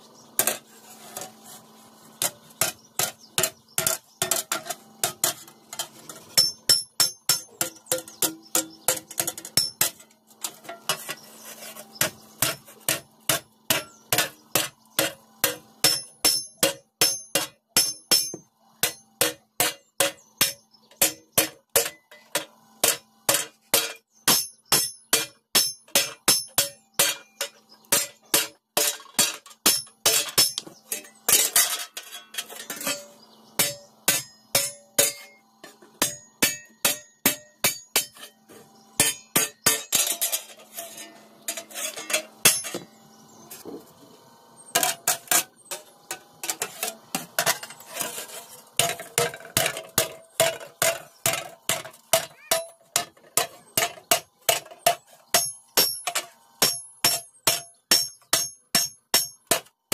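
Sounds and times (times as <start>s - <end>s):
hammer beating iron sheet: 12.0s - 31.8s, 32.8s - 38.3s, 39.0s - 40.4s, 48.8s - 59.7s.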